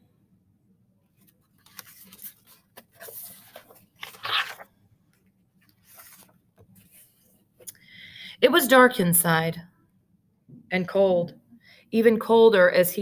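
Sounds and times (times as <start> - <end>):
book pages rustling: 1.2 - 7.5.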